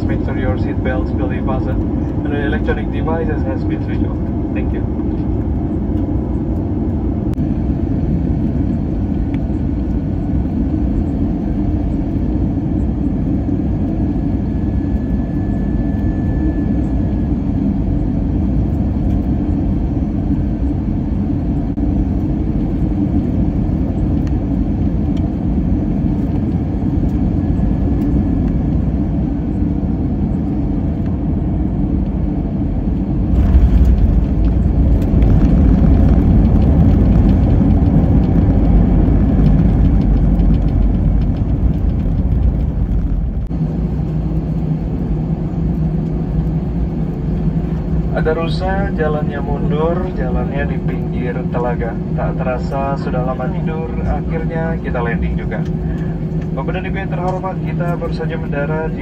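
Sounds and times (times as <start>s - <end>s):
airplane cabin engine rumble: 0.0s - 59.0s
wheels rolling on runway: 33.0s - 43.5s.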